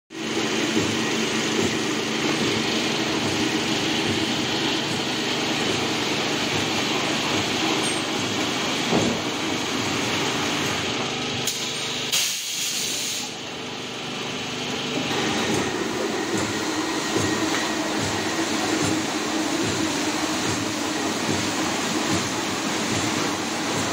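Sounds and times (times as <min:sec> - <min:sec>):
motor and gearbox hum: 0:00.1 - 0:12.1, 0:13.4 - 0:23.9
hiss of log being peeled: 0:12.1 - 0:13.4.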